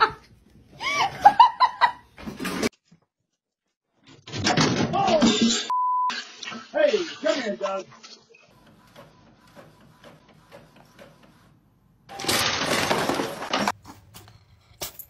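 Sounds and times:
crash and clatter of things falling: 12.1s - 13.8s.

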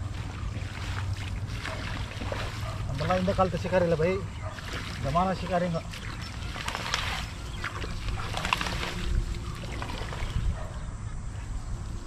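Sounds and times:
wind rumbling on microphone: 6.0s - 12.0s.

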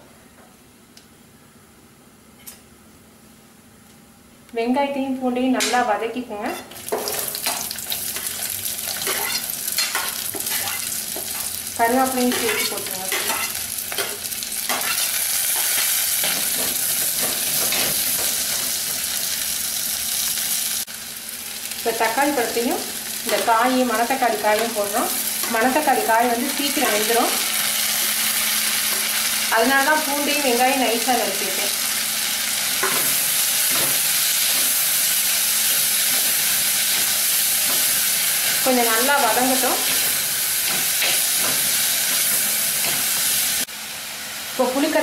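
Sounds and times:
onions sizzling in hot oil: 6.6s - 45.0s
metal spoon scraping: 8.2s - 11.4s, 12.3s - 16.4s.

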